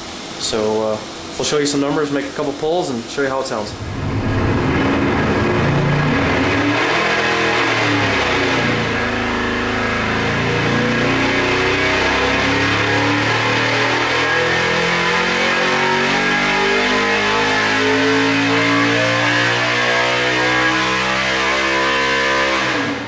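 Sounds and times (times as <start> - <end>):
race engine revving under load: 3.5 - 23.0.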